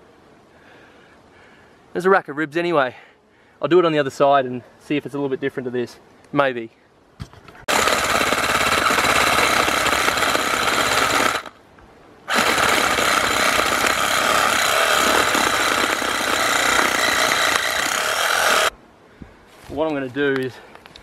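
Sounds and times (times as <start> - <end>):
reciprocating saw cutting bone: 7.7 - 11.5, 12.3 - 18.7.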